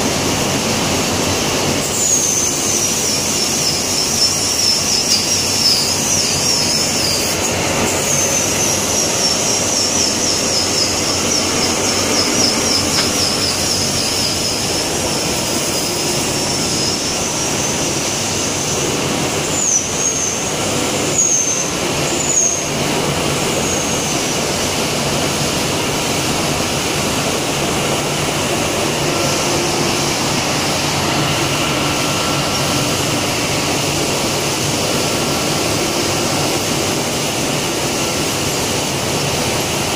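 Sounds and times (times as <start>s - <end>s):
loud factory machinery: 0.0s - 39.9s
high wavering squeal: 1.8s - 22.8s, 27.9s - 36.2s.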